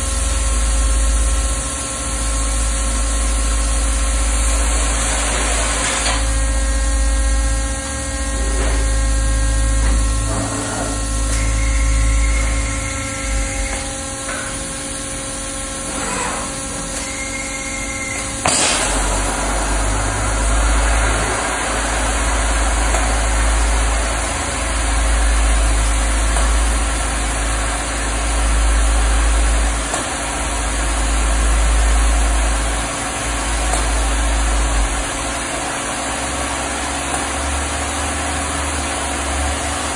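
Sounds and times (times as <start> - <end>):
cutting torch hissing: 4.2 - 6.3, 17.3 - 26.0
steady whining tones: 6.2 - 27.6
low machine rumble: 17.3 - 32.8.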